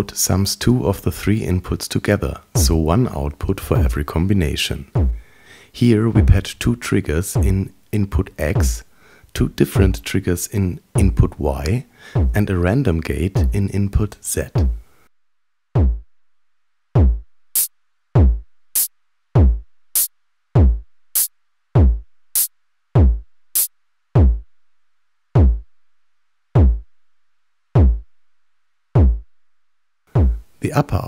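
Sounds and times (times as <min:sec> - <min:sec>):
deep electronic drum hit: 0:02.6 - 0:02.8, 0:05.0 - 0:05.2, 0:07.4 - 0:07.6, 0:15.8 - 0:16.0, 0:17.0 - 0:17.2, 0:18.2 - 0:18.4, 0:19.4 - 0:19.6, 0:20.6 - 0:20.8, 0:21.8 - 0:22.0, 0:23.0 - 0:23.2, 0:24.2 - 0:24.4, 0:25.4 - 0:25.6, 0:26.6 - 0:26.8, 0:27.8 - 0:28.0, 0:29.0 - 0:29.2, 0:30.2 - 0:30.4.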